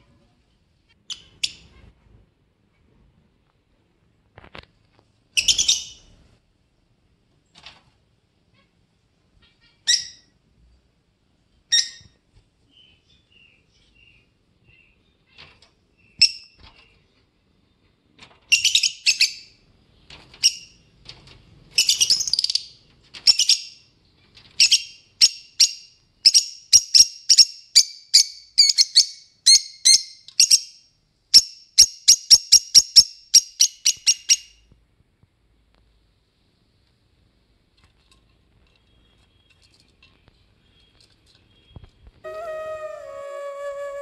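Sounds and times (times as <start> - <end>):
lovebirds chirping: 5.4 - 6.2, 38.9 - 44.0.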